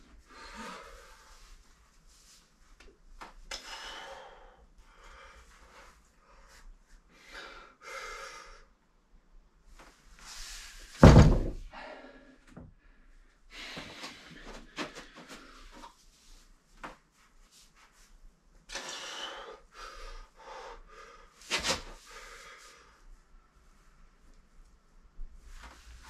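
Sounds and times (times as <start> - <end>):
strained breathing: 0.2 - 1.7, 3.5 - 8.8, 18.7 - 23.2
heavy stone thudding on floor: 11.0 - 11.6.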